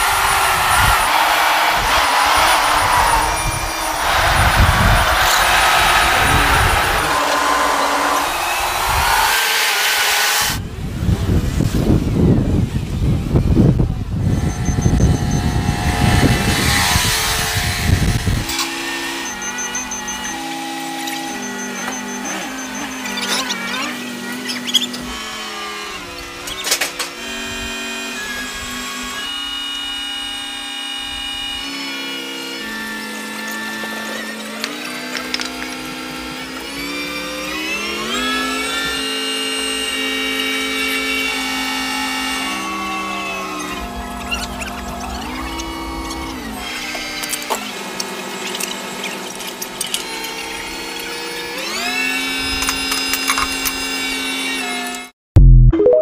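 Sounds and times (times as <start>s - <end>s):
wind buffeting microphone: 0.0s - 9.4s, 10.4s - 18.5s
crane engine and tyre rumble: 0.0s - 26.5s, 32.8s - 52.9s.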